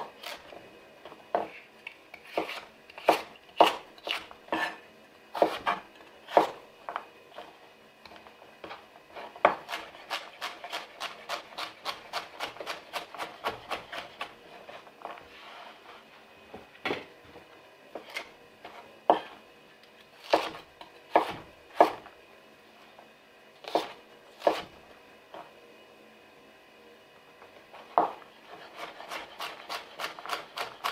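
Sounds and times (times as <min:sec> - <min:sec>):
knife scraping board: 0:01.4 - 0:04.8, 0:09.1 - 0:16.1, 0:27.8 - 0:30.9
knife chopping on wooden board: 0:02.2 - 0:04.8, 0:05.4 - 0:06.6, 0:20.2 - 0:22.0, 0:23.6 - 0:24.7, 0:27.9 - 0:28.2.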